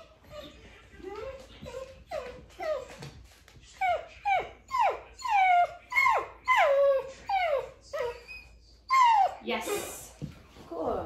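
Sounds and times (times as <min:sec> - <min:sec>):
dog whining: 0:00.0 - 0:09.9.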